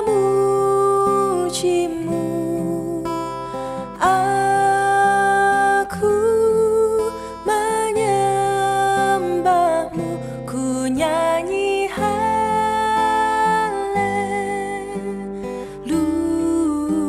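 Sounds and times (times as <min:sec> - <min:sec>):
acoustic guitar: 0:00.0 - 0:17.0
woman singing long held notes: 0:03.9 - 0:17.0.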